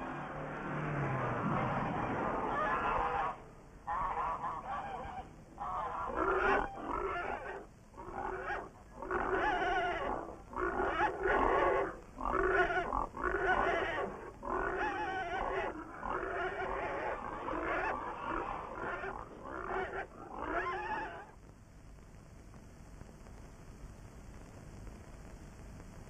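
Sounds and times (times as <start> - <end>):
pig calling: 1.9 - 21.4.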